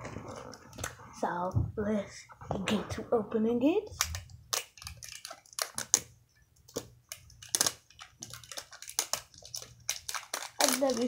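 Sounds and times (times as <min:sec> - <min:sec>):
plastic wrapping crackling: 0:03.9 - 0:06.1, 0:06.7 - 0:11.0.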